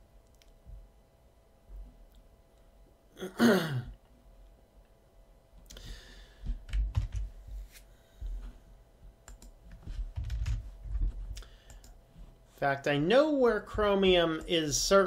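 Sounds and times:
person sighing: 3.2 - 4.0
computer keyboard keystrokes: 6.6 - 7.3, 9.2 - 10.6, 11.6 - 12.0.

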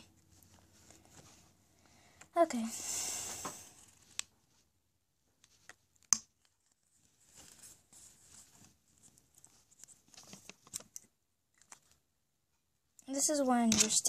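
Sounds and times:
soft scratchy rustle: 0.0 - 1.6, 6.5 - 11.0.

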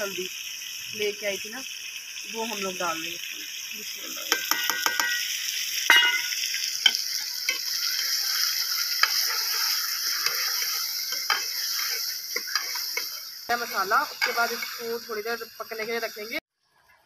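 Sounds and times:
food sizzling in a pot: 0.0 - 16.4
metal spoon scraping a pot: 5.9 - 16.1.

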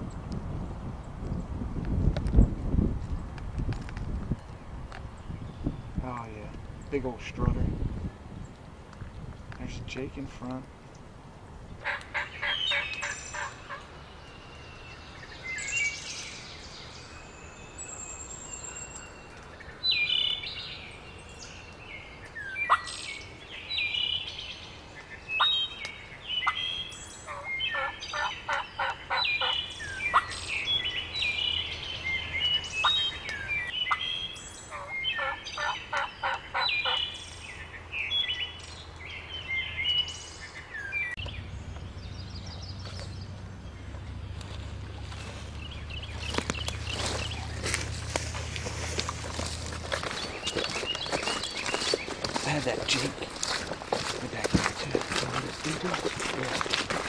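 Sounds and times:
songbirds singing: 3.6 - 57.0
turkeys gobbling: 11.8 - 13.9, 27.3 - 30.6, 34.7 - 37.1.

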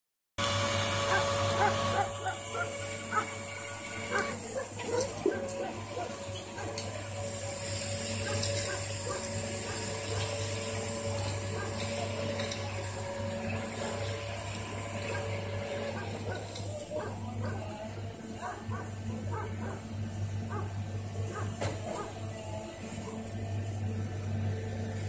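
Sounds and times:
electric motor humming: 0.4 - 25.0.

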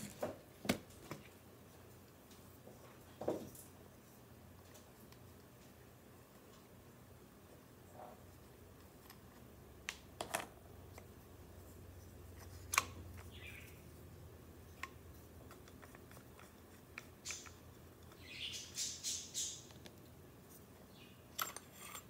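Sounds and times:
metal parts sliding scrapes: 21.4 - 22.0.

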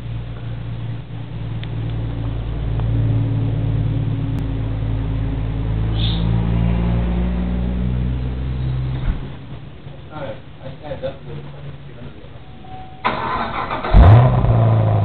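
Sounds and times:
car engine idling: 0.0 - 6.2, 9.2 - 15.0.

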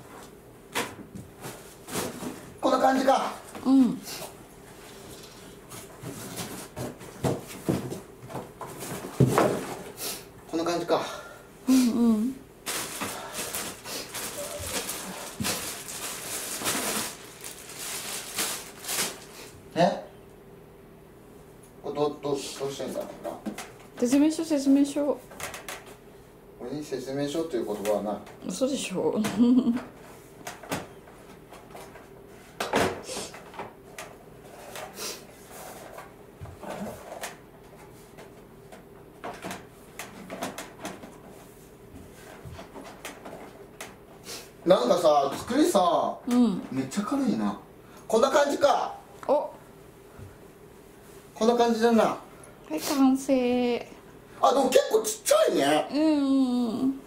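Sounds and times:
packaging rustling and scraping: 12.6 - 19.5.

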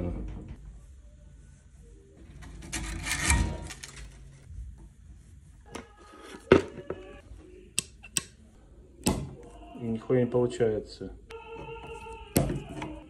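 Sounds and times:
strings and wood scraping: 2.2 - 4.3.

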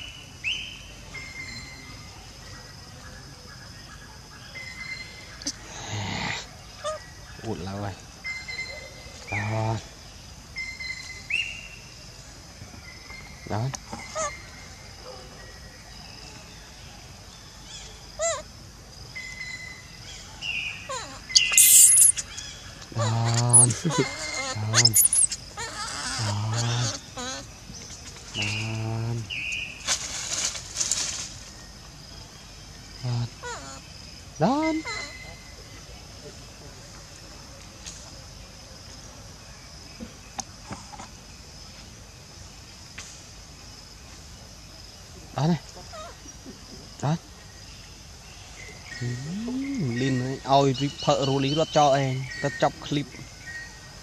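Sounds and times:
insects droning: 0.0 - 54.0
monkey squeaky call: 20.9 - 22.4, 23.0 - 27.4
high-pitched forest background: 21.3 - 25.6, 48.9 - 51.2.

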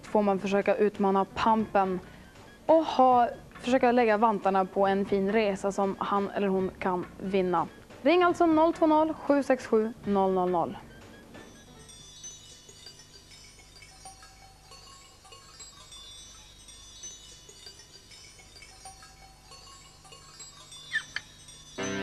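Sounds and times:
twinkling chime tones: 10.8 - 22.0.

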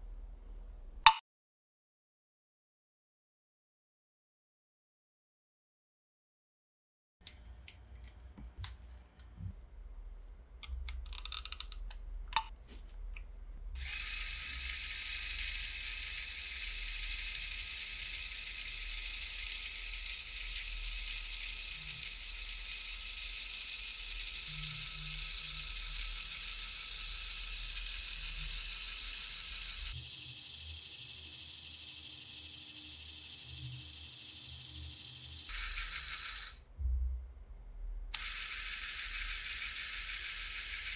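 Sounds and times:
plastic parts clicking into place: 10.6 - 12.5
small motor whirring: 13.8 - 36.6, 38.2 - 40.9.

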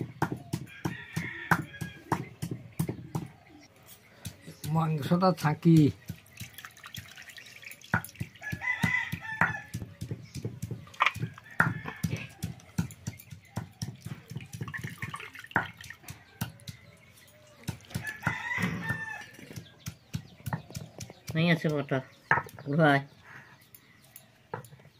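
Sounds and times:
chickens calling: 0.0 - 24.9
rooster crowing: 0.7 - 2.1, 8.4 - 9.7, 11.1 - 12.6, 18.0 - 19.4
hands washing meat in water: 5.5 - 9.2, 13.8 - 18.5.

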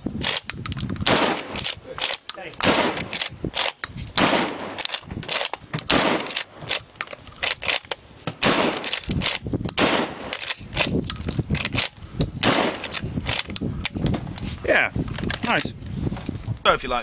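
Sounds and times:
shotgun lever clacking: 0.2 - 14.5
shotgun shots: 1.0 - 5.0, 5.8 - 6.5, 8.4 - 10.5, 12.4 - 13.0.

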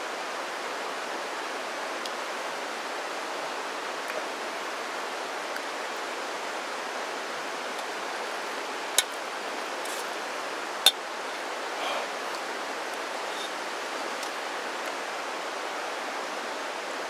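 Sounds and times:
stream rushing: 0.0 - 17.0.

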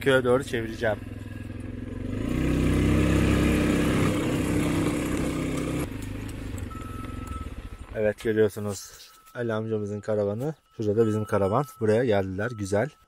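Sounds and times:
atv engine running: 0.0 - 8.6.

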